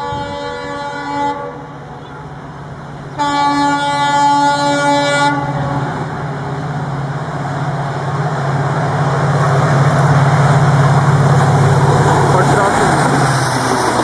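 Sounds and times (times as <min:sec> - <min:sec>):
locomotive air horn blast: 0:00.0 - 0:01.8, 0:03.2 - 0:06.0
diesel locomotive engine: 0:00.0 - 0:14.0
train running noise: 0:00.0 - 0:14.0.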